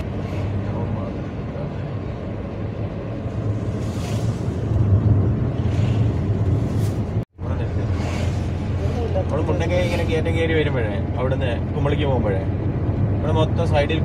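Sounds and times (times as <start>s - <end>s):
wind hissing past car: 0.0s - 10.7s
car engine and road drone: 0.0s - 14.0s.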